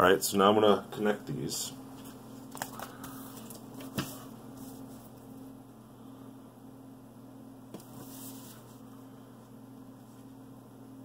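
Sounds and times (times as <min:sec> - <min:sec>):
low electrical hum: 0:00.0 - 0:11.0
paper handling noise: 0:02.0 - 0:05.3.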